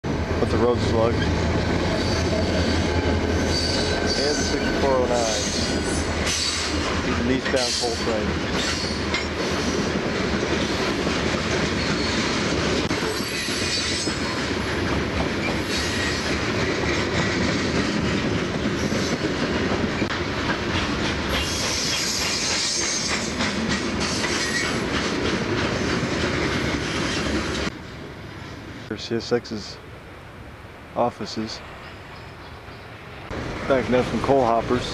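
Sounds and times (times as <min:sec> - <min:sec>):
train wheels clicking over rail joints: 0:00.1 - 0:27.7
high wheel squeal: 0:01.1 - 0:09.8, 0:13.0 - 0:14.4, 0:15.4 - 0:16.3, 0:24.1 - 0:24.8.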